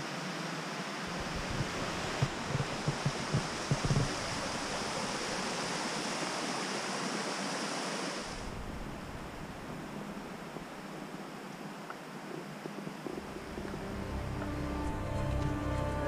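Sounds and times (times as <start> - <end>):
waterfall rushing: 0.0 - 11.5
bumps on microphone: 1.2 - 4.7.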